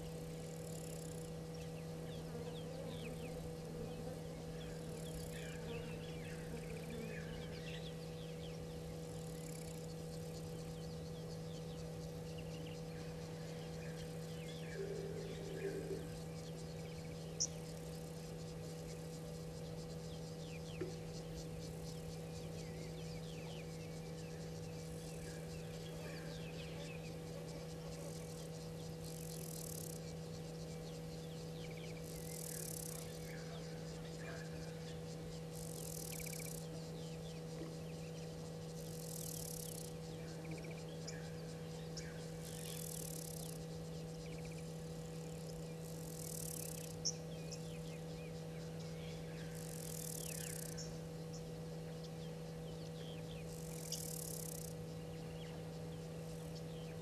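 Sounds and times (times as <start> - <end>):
faint bird chirps: 0.0 - 57.0
insect buzzing: 0.0 - 57.0
steady low hum: 0.0 - 57.0.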